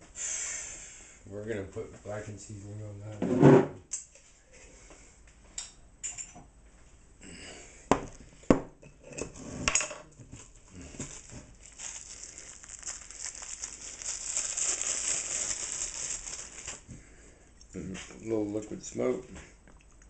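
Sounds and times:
seasoning shaken out rustling: 10.4s - 16.9s.

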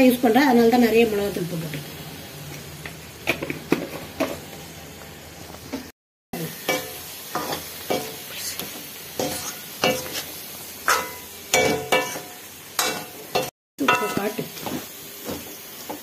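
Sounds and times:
food sizzling in a pan: 0.0s - 16.0s
metal ladle scraping a pan: 9.2s - 14.2s.

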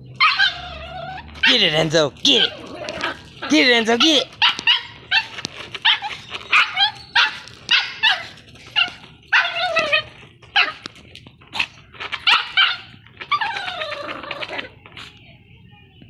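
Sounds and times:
small dog yapping: 0.2s - 14.8s.

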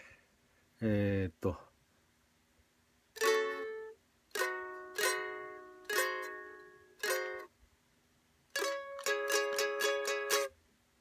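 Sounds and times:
ukulele chords strummed: 3.2s - 7.6s, 8.5s - 10.6s.

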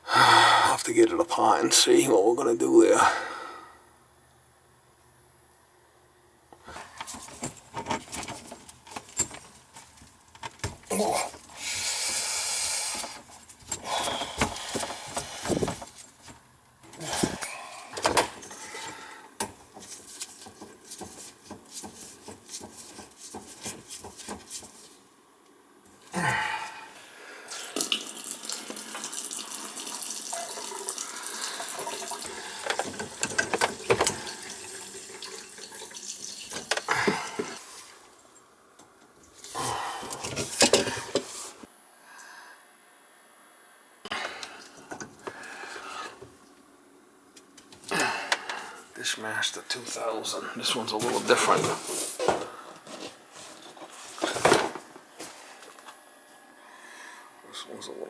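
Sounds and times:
water running into plastic jar: 27.5s - 36.8s
tools clinking and knocking: 32.7s - 34.2s.

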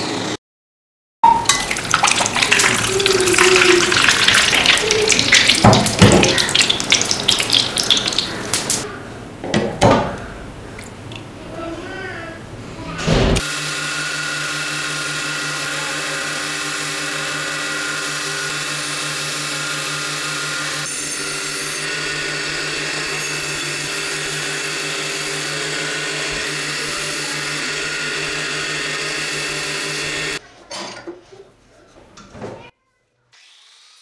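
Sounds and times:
bench grinder motor hum: 13.4s - 30.4s.

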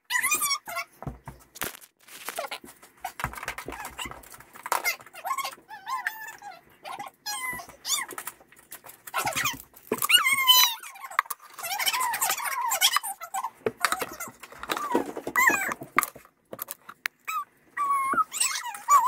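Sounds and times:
children squealing and babbling: 4.8s - 8.2s, 9.2s - 15.8s, 17.3s - 19.0s.

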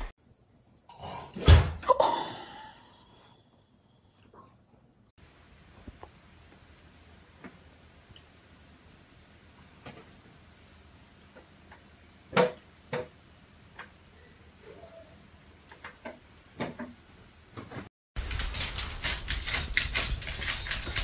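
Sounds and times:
dog claws scrabbling on wooden floor: 18.2s - 21.0s.

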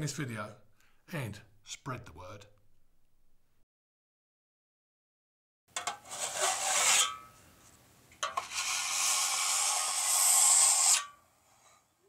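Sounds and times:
rough scraping burst: 6.0s - 7.3s, 8.4s - 11.2s.

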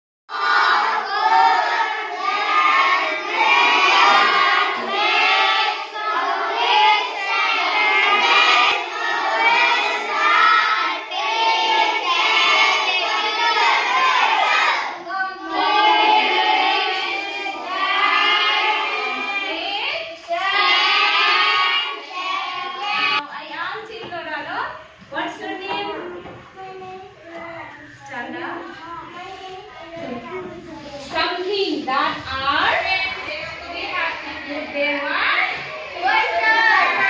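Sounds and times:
children's voices in chorus: 0.3s - 23.2s, 33.0s - 37.0s.

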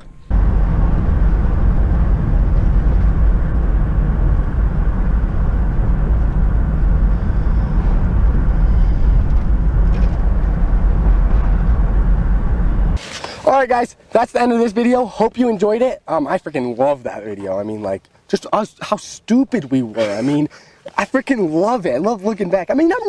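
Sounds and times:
truck engine and road rumble: 0.0s - 14.1s.

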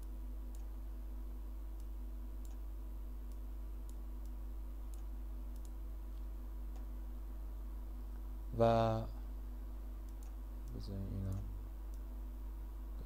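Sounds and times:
computer mouse clicks: 0.0s - 0.7s, 1.8s - 2.6s, 3.3s - 5.8s, 10.0s - 12.1s
low electrical hum: 0.0s - 13.0s.

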